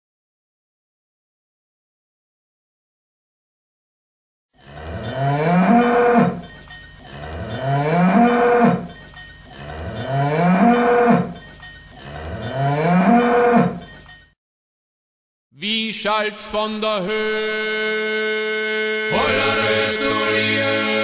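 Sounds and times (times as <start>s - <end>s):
cattle mooing: 4.6s - 6.4s, 7.0s - 8.9s, 9.5s - 11.4s, 12.0s - 13.8s.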